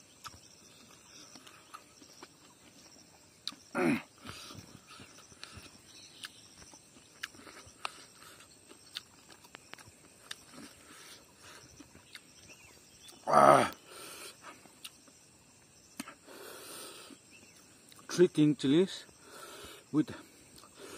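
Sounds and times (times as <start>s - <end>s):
wet chewing clicks: 0.1s - 13.2s, 14.4s - 15.1s, 17.4s - 18.2s.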